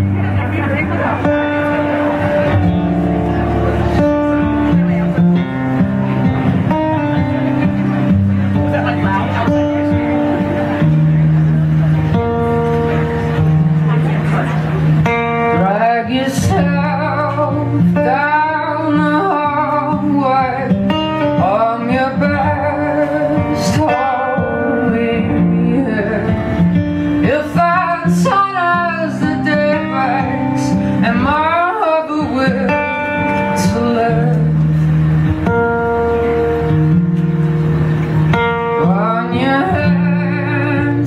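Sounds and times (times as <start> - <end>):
band playing: 0.0 - 41.0
strummed acoustic guitar: 0.0 - 41.0
woman singing into a microphone: 15.4 - 35.3, 38.3 - 41.0.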